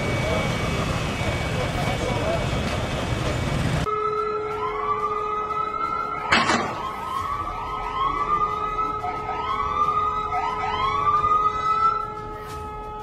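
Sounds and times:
siren wailing: 0:00.0 - 0:02.4, 0:03.8 - 0:13.0.

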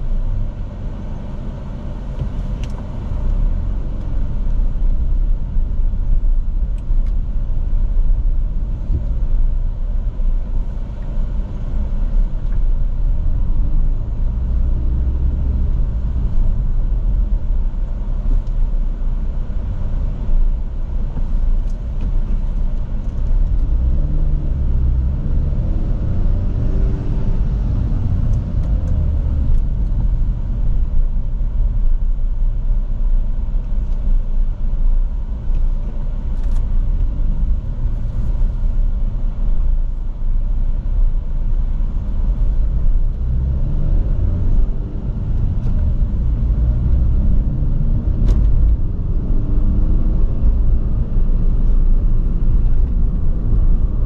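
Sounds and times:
road noise: 0:00.0 - 0:54.0
sports car engine accelerating: 0:23.2 - 0:30.9, 0:42.1 - 0:54.0.

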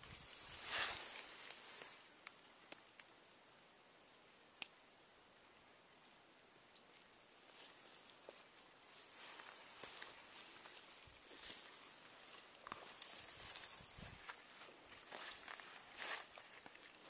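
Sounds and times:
faint clicks: 0:04.6 - 0:04.9.

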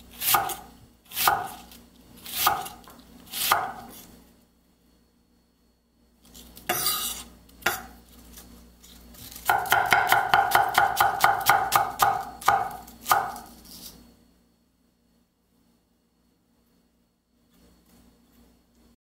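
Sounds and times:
knife chopping cabbage on wood: 0:00.2 - 0:04.0, 0:09.4 - 0:13.6.

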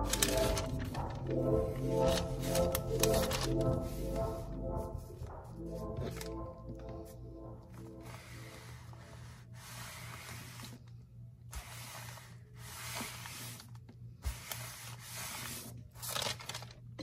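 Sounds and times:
paper rustling: 0:00.0 - 0:01.2, 0:15.3 - 0:16.8.

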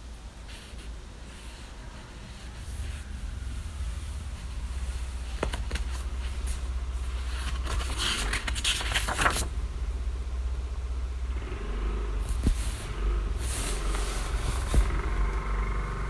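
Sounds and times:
road traffic rumble: 0:00.0 - 0:16.0
book page rustling: 0:04.3 - 0:09.5, 0:12.2 - 0:15.0.

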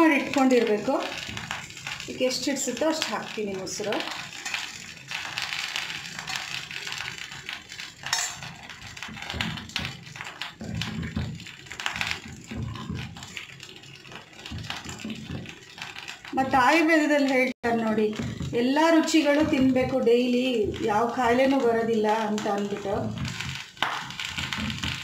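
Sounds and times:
spoon clinking on stone pot: 0:08.0 - 0:08.6.

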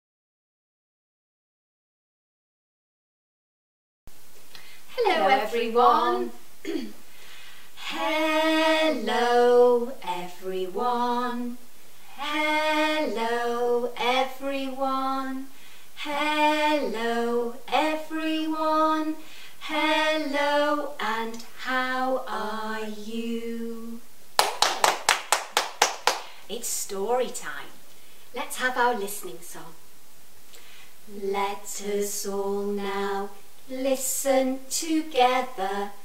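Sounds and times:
women singing a children's song: 0:04.9 - 0:06.8, 0:07.8 - 0:24.0, 0:28.4 - 0:29.7, 0:31.1 - 0:36.0
hand claps: 0:24.4 - 0:26.4.

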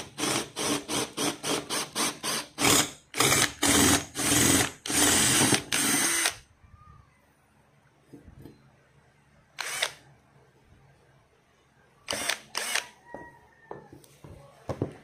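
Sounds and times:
cordless drill blips: 0:00.2 - 0:06.4, 0:09.6 - 0:10.0, 0:12.1 - 0:12.9.

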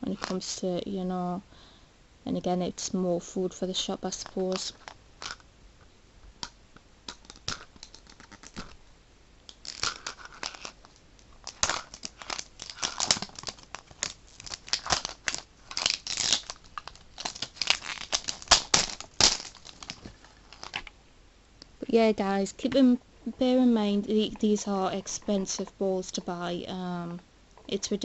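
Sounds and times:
plastic wrapping tearing and crinkling: 0:07.1 - 0:08.8, 0:09.5 - 0:20.9.

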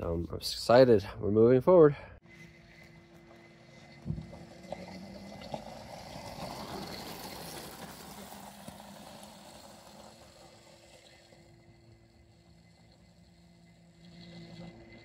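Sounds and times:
thump: 0:04.0 - 0:04.4
tyres crunching on gravel: 0:05.5 - 0:10.8.

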